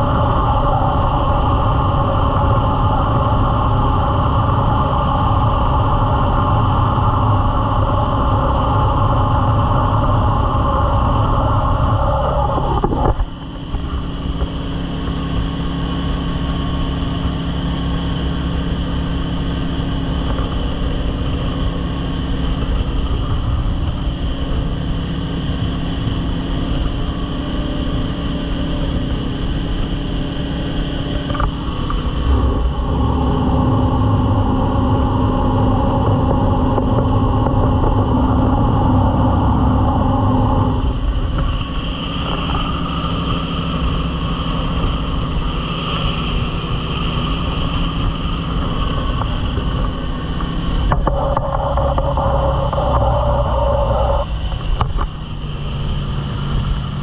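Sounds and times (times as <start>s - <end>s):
boat engine running hard: 0.0s - 57.0s
wind: 0.0s - 57.0s.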